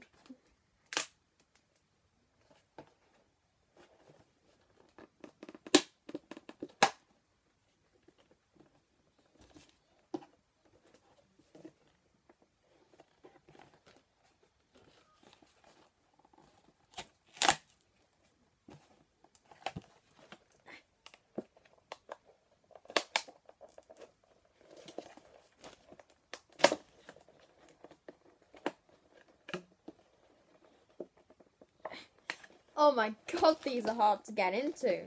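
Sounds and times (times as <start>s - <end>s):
plastic packaging crackling and tearing: 14.7s - 18.0s.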